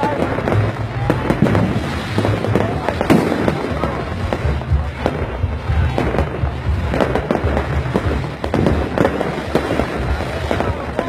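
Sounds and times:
fireworks bursting with sharp bangs: 0.0 - 11.0.

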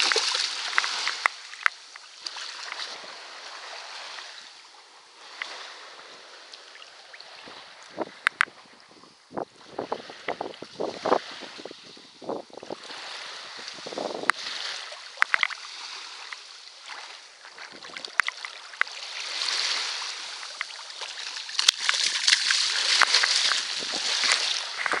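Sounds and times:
fish splashing in water: 0.0 - 3.1, 14.4 - 25.0
water sloshing over sand: 0.0 - 25.0.

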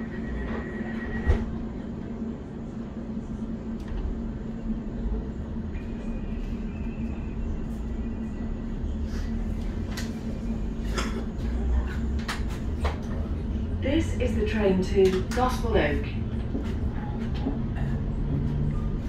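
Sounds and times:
electric train hum: 0.0 - 19.0
train running rumble: 0.0 - 19.0.

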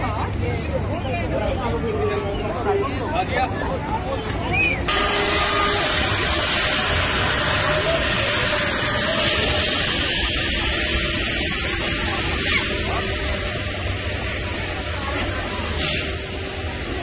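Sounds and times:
jet engine rush: 4.9 - 17.0.

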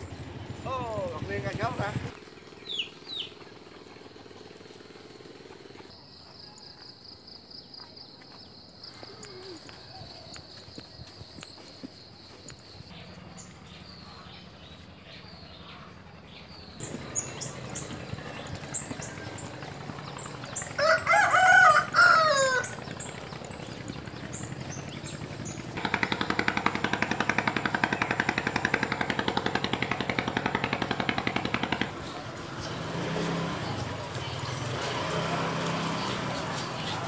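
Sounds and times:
small birds chirping: 0.0 - 37.0
rapidly pulsing buzz: 16.7 - 34.4
rooster crowing: 20.6 - 23.0.

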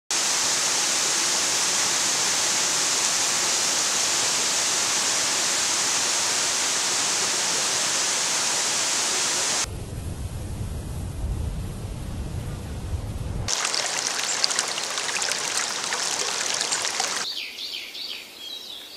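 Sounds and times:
lower uneven water rush: 0.1 - 9.7, 13.5 - 17.3
waterfall rushing: 13.5 - 17.3.

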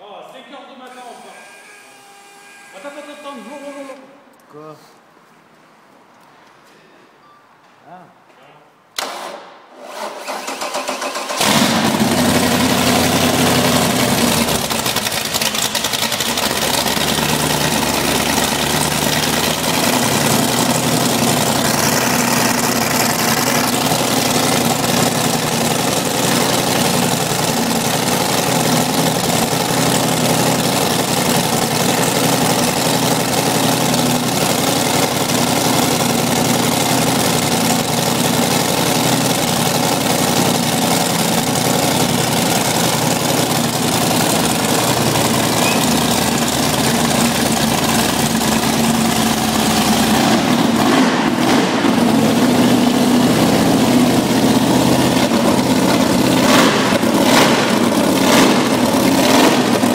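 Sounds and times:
engine cranking: 9.0 - 53.0
boat engine running loud: 52.7 - 59.9.

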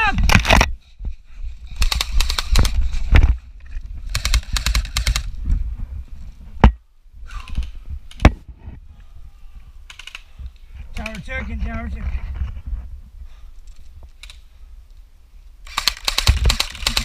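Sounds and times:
airsoft gun full-auto bursts: 1.8 - 2.8, 4.1 - 5.3, 15.6 - 17.0.

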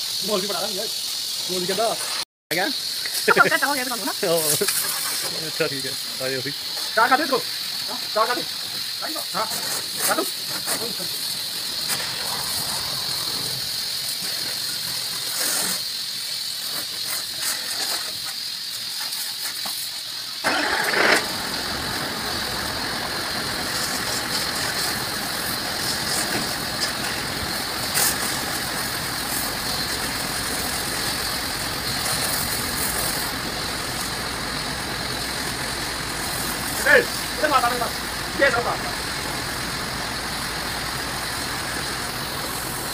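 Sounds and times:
water jet hissing: 0.0 - 42.9
engine starting and running: 20.4 - 42.9.

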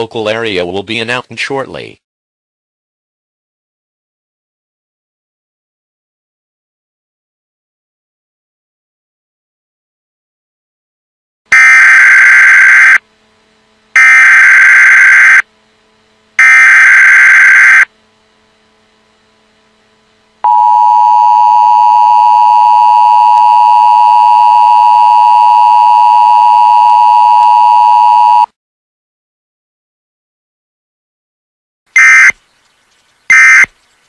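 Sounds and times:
buzzy data bursts: 14.0 - 15.4, 16.4 - 17.9, 33.3 - 33.7.

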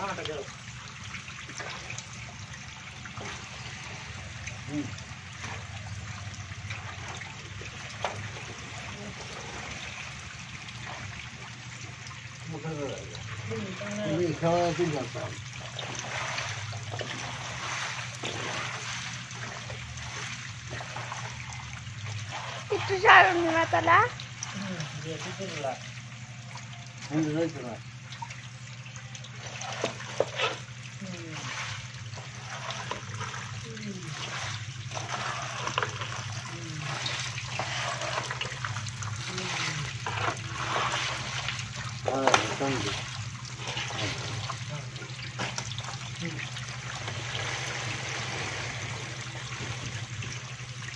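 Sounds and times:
steady low hum: 0.0 - 50.9
water trickling and splashing: 0.0 - 50.9.

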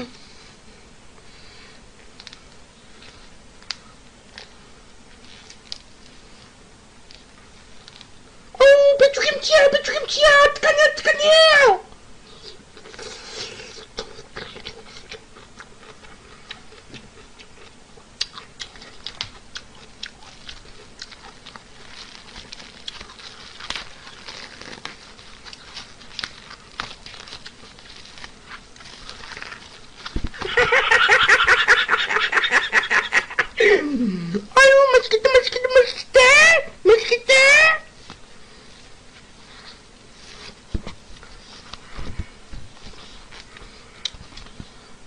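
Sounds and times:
chewing and eating noises: 12.2 - 30.4
man laughing loudly: 30.4 - 34.0.

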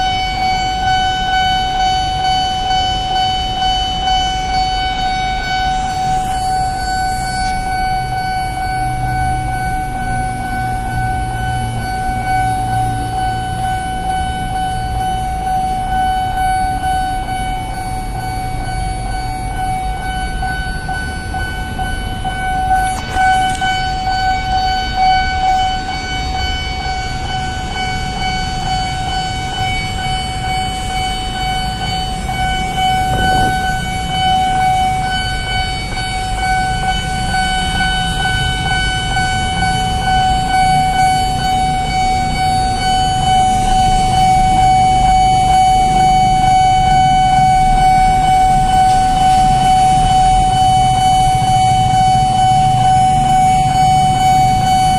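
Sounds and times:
level crossing alarm tone: 0.0 - 54.9
low rumble: 32.6 - 35.6.

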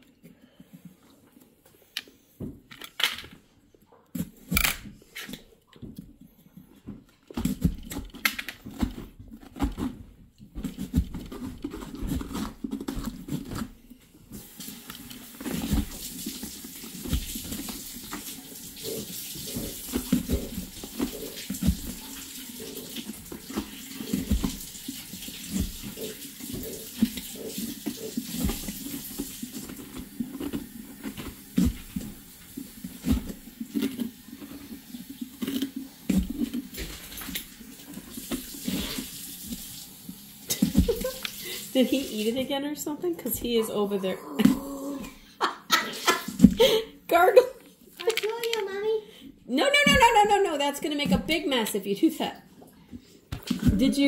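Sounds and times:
tap running into a sink: 40.5 - 41.6.

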